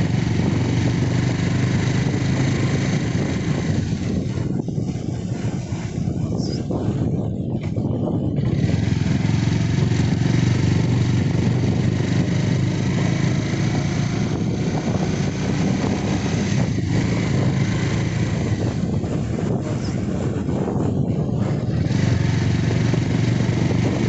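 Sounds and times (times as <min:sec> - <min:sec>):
motorcycle engine running: 0:00.0 - 0:24.0
wind and road noise: 0:00.0 - 0:24.0.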